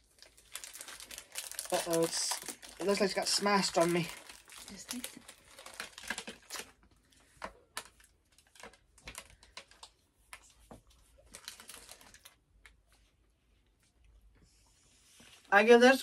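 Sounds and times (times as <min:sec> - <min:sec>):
snack wrapper crinkling: 0:00.0 - 0:10.4, 0:11.1 - 0:12.8.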